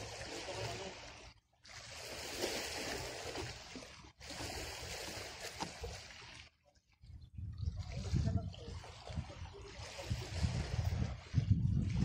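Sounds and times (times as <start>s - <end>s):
sea water washing against rocks: 0.0s - 6.5s.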